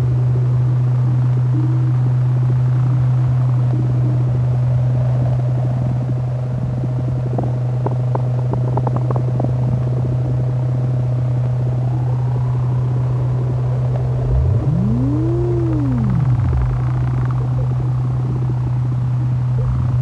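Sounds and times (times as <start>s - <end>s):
low synthesizer drone: 0.0s - 20.0s
low rising sweep: 13.3s - 18.8s
higher synthesizer tone gliding: 13.3s - 20.0s
crackling clicks: 13.9s - 17.8s.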